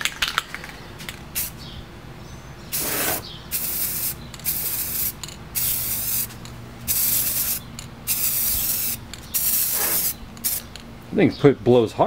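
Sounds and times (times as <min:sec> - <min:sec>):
spray paint can hissing: 0:02.7 - 0:10.7.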